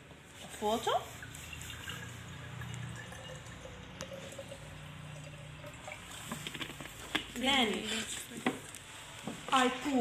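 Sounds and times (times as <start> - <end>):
water pouring into glass jar: 0.6 - 7.0.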